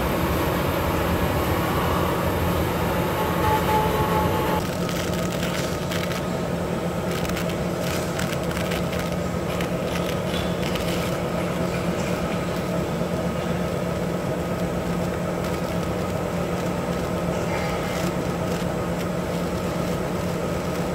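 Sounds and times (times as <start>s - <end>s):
paper machine humming and whirring: 0.0s - 20.9s
light crackles: 7.1s - 11.2s.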